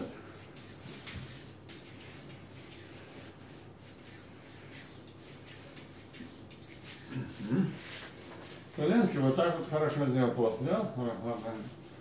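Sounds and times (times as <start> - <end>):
hands rubbing skin: 0.3 - 9.2.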